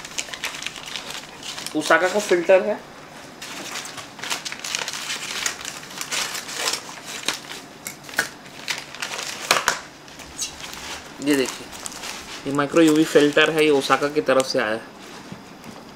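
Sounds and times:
envelope shaken: 0.0 - 2.4, 3.4 - 7.6, 8.5 - 14.1
paper envelope crinkling: 0.0 - 2.6, 3.3 - 14.8.

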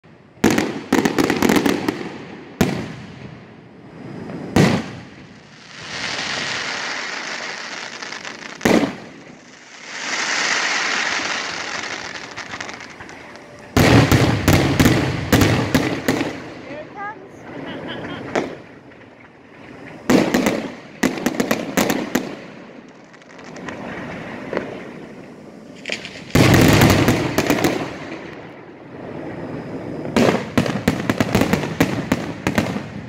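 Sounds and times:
crackling hiss: 0.0 - 33.0
firework shells bursting: 25.8 - 28.5.

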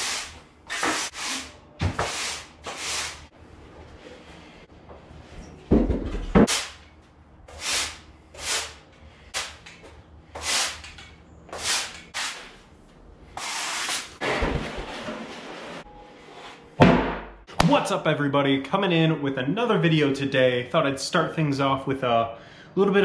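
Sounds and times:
push broom scraping rubber floor: 0.0 - 3.4, 7.5 - 9.7, 10.4 - 12.6, 13.4 - 16.6.

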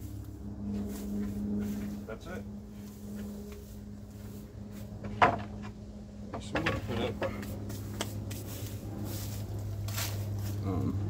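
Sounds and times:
steady low hum: 0.0 - 11.0
wood scraping: 2.8 - 10.6
wooden boards knocking: 5.0 - 7.5.

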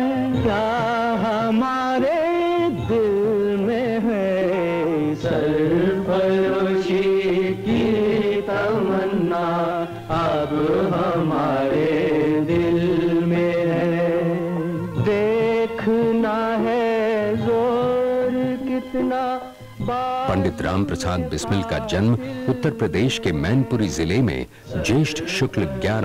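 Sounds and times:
background music: 0.0 - 26.0.

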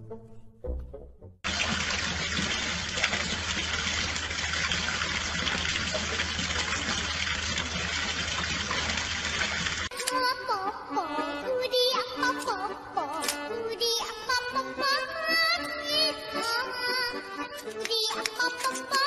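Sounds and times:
water splashing on hard surface: 1.4 - 9.9.

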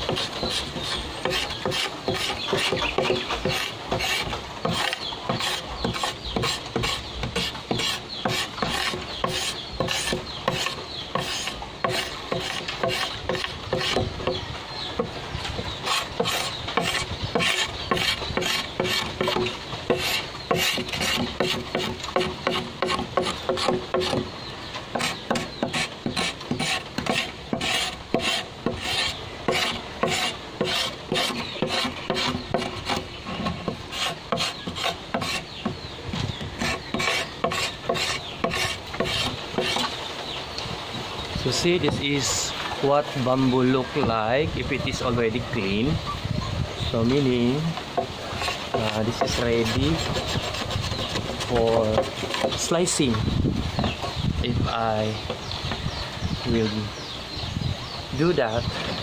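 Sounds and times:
knife scraping bamboo: 0.0 - 14.4, 15.0 - 24.3, 24.9 - 40.0, 48.1 - 53.0.

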